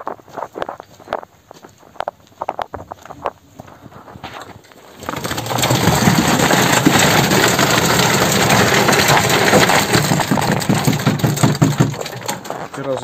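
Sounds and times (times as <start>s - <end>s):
concrete pouring from metal bucket: 4.8s - 13.0s.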